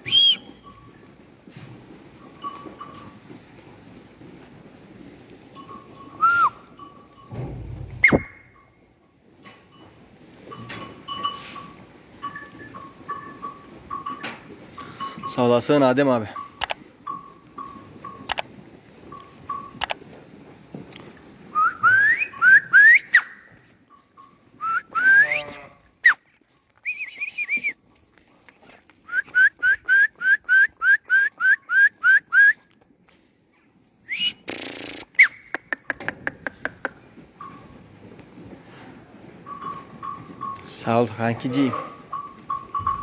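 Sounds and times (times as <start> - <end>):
person whistling: 0.0 - 0.6, 6.2 - 6.6, 8.0 - 8.4, 21.6 - 23.4, 24.6 - 25.4, 26.8 - 27.8, 29.1 - 32.6, 34.1 - 35.6
rapid patter of clicks: 16.4 - 20.2, 35.5 - 37.6.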